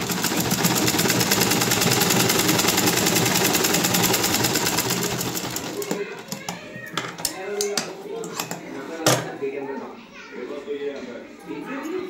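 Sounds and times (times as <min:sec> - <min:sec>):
sewing machine clatter: 0:00.0 - 0:06.6.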